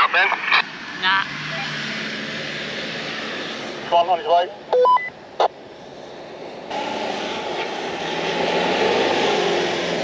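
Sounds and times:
engine working hard: 0:06.7 - 0:10.0.

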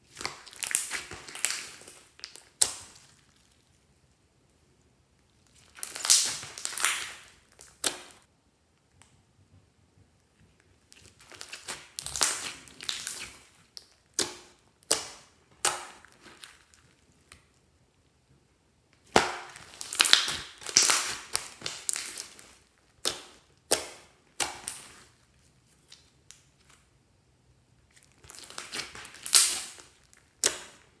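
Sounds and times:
slime popping and crackling: 0:00.0 - 0:03.6, 0:05.4 - 0:08.3, 0:10.9 - 0:17.4, 0:19.0 - 0:26.5, 0:28.0 - 0:31.0.

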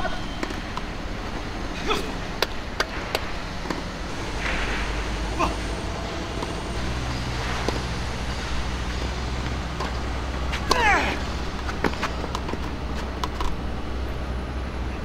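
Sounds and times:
low outdoor rumble: 0:00.0 - 0:15.0
tennis ball bouncing on court: 0:07.6 - 0:08.0.

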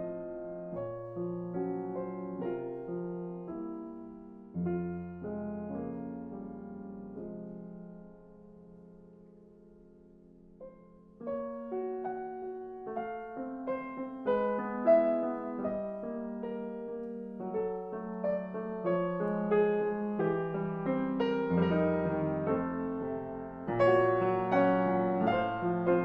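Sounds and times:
solo piano music: 0:00.0 - 0:26.0.

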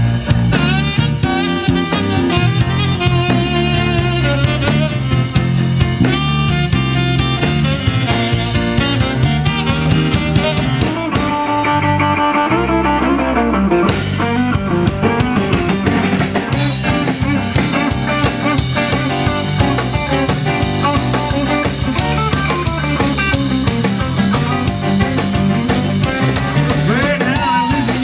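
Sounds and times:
bass: 0:00.0 - 0:28.0
drum kit: 0:00.0 - 0:28.0
electric guitar: 0:00.0 - 0:28.0
keyboard: 0:00.0 - 0:28.0.

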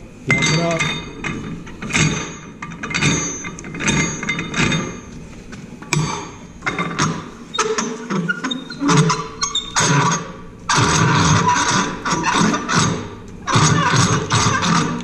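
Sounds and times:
metallic clinks and knocks: 0:00.3 - 0:05.2.

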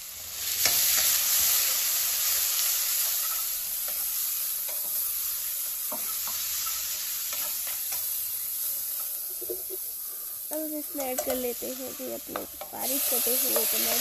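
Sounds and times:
food sizzling in oil: 0:00.0 - 0:14.0
spoon scraping a pan: 0:05.8 - 0:14.0.

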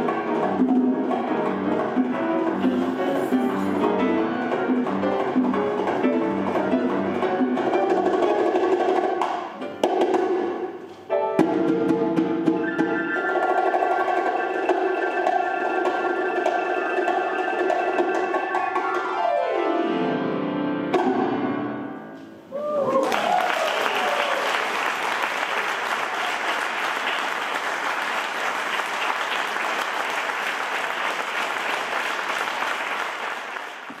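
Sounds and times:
bongos: 0:00.0 - 0:19.2
grand piano: 0:00.0 - 0:22.8
audience applauding: 0:22.7 - 0:34.0.

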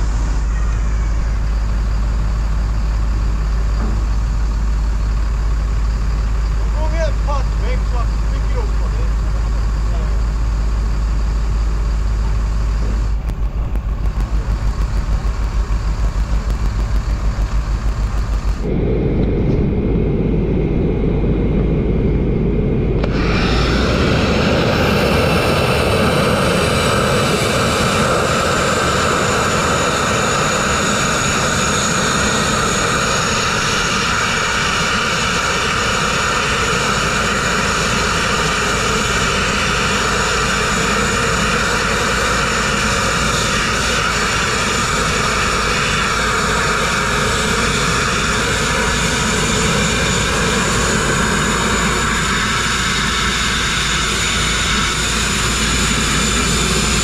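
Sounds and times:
grit-blasting nozzle hissing: 0:23.0 - 0:24.2.

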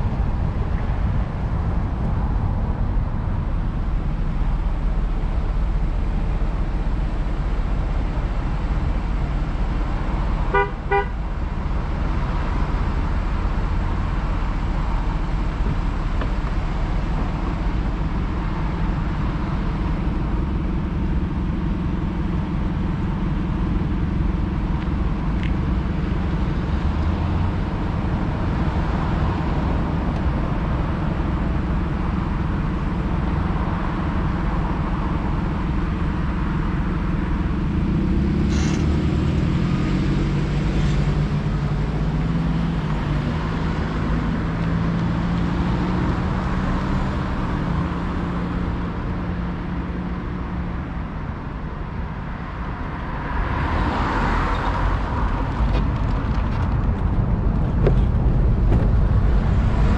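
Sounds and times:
low rumble of road traffic: 0:00.0 - 0:59.9
car horn short beeps: 0:10.5 - 0:11.2.

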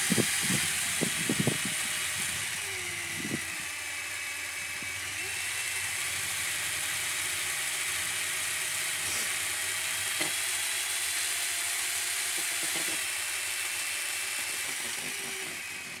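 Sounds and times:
governor high whir: 0:00.0 - 0:10.4
model steam engine hissing: 0:00.0 - 0:16.0.

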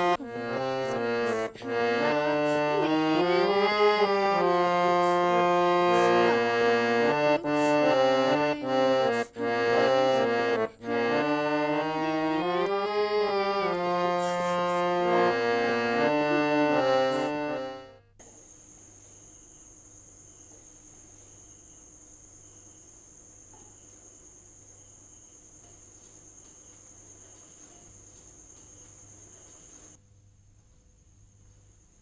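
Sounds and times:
reed organ chords: 0:00.0 - 0:18.0
crickets chirring: 0:18.2 - 0:30.0.

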